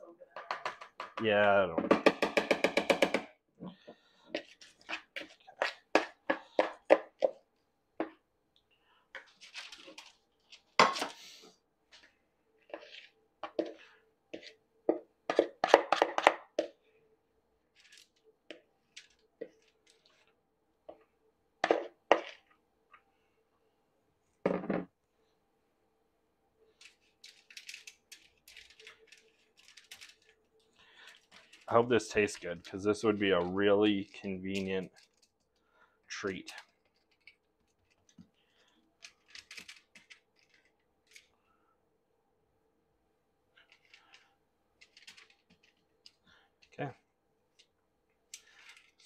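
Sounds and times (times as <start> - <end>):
spoon scraping plastic bowl: 11.9 - 14.6.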